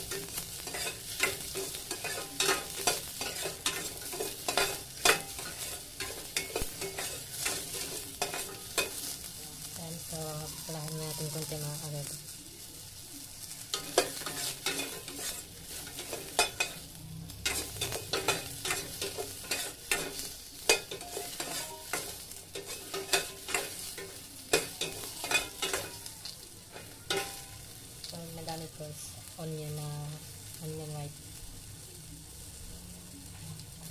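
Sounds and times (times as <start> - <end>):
utensil scraping steel pot: 0.0 - 9.0, 13.7 - 26.1
oil sizzling: 0.0 - 33.9.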